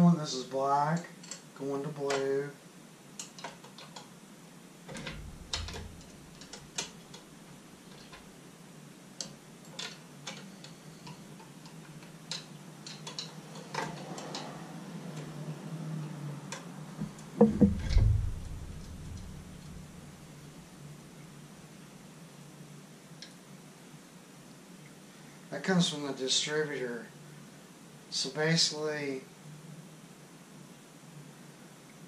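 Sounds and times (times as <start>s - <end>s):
louder knocks: 5.0s - 6.8s, 17.4s - 20.3s.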